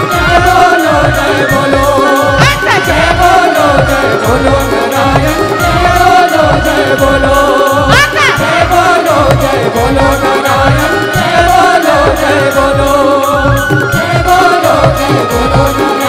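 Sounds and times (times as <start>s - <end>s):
electronic keyboard: 0.0s - 16.0s
hand drums beat: 0.0s - 16.0s
woman singing into microphone: 0.0s - 16.0s.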